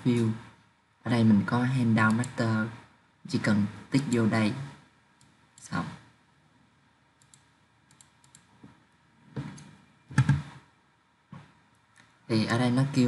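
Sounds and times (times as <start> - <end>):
computer mouse clicking: 7.2 - 8.7.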